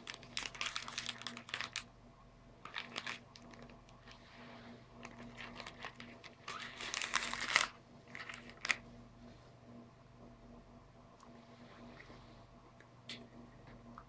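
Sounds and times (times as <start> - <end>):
foil pouch crinkling: 0.0 - 1.9, 2.6 - 4.2, 5.0 - 8.9.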